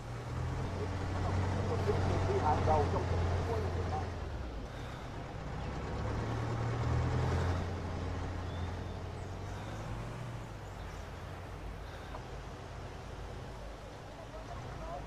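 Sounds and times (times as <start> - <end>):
truck engine running: 0.0 - 15.0.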